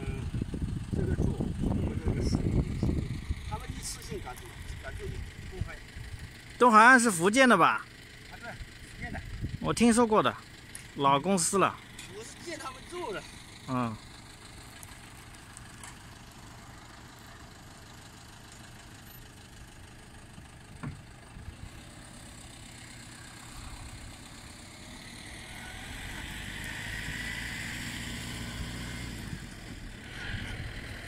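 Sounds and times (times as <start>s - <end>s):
machine engine droning: 10.4s - 31.0s.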